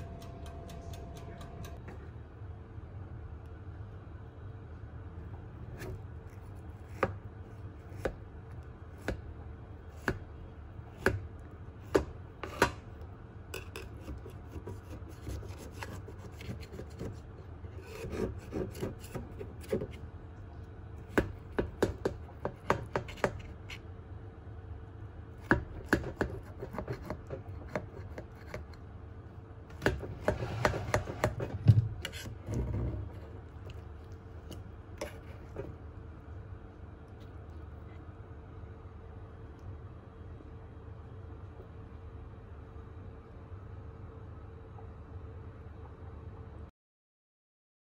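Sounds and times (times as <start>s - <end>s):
utensils tapping and scraping: 0.0s - 1.8s, 29.7s - 33.8s, 34.4s - 35.8s
faint steady hum: 0.0s - 46.7s.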